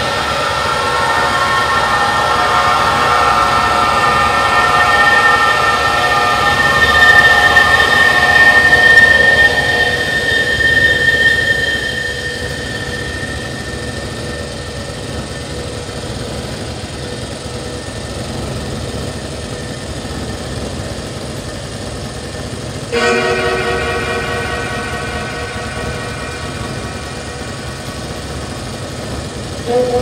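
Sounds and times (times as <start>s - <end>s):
sustained pitched tones: 0.0s - 20.9s, 22.8s - 30.0s
low rumbling drone: 0.0s - 21.0s, 22.7s - 30.0s
sustained high tones: 0.0s - 21.0s, 22.3s - 30.0s.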